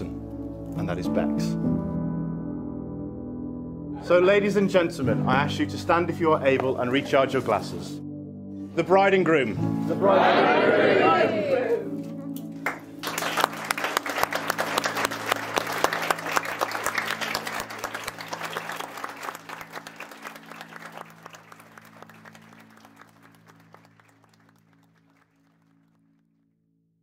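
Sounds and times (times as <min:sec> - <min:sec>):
quiet music with low notes: 0:00.0 - 0:26.2
crowd applauding: 0:12.5 - 0:26.2.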